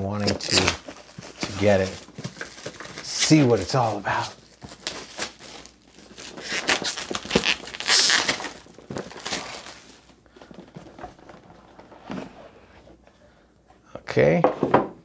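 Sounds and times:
plastic shrink-wrap crinkling and tearing: 0.0 - 10.2.

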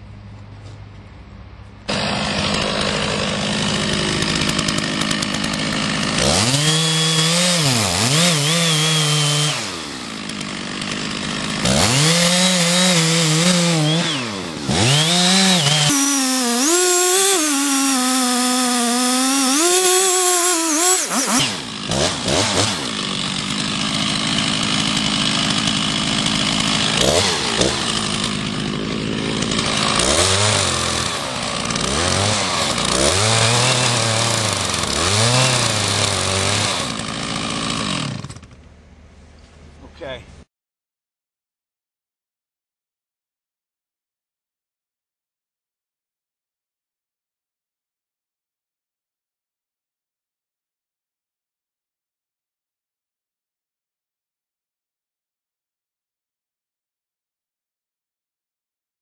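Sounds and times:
chainsaw cutting wood: 1.9 - 38.8.

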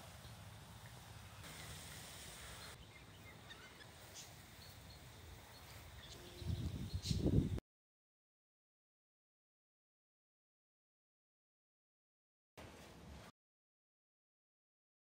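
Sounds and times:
faint bird chirps: 2.5 - 7.4.

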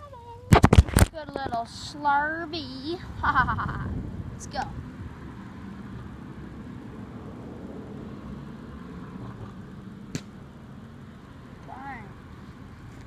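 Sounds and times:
low outdoor rumble: 0.0 - 13.0
ball striking target: 10.1 - 10.4.

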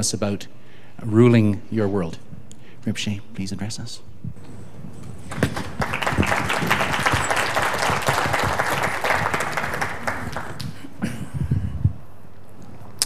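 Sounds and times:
audience applauding: 5.3 - 10.9.

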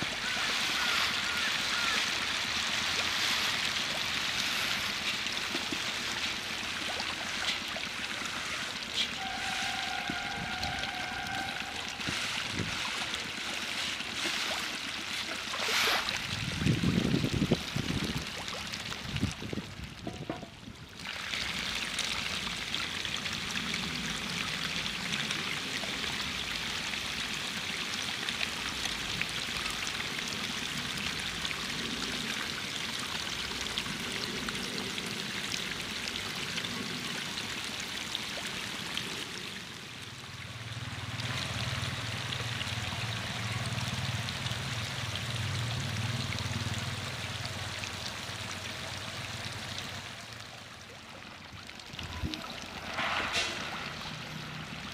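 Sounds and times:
fish splashing at water surface: 0.0 - 16.6, 52.0 - 54.9.

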